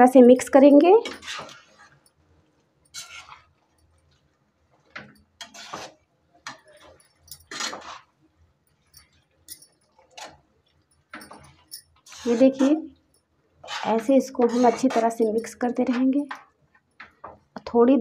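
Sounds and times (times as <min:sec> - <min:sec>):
spatula scraping in a pan: 0:00.4 - 0:02.2, 0:02.8 - 0:04.2, 0:04.8 - 0:08.2, 0:11.2 - 0:12.9, 0:13.6 - 0:17.4.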